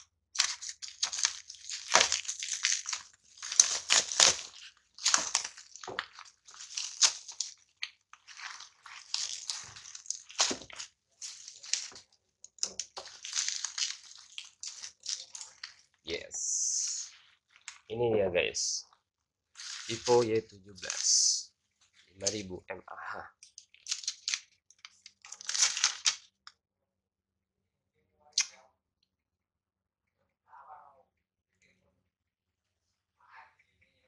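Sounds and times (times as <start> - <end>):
plastic wrap crinkling and tearing: 0.0 - 17.9, 19.5 - 22.5, 23.4 - 26.4.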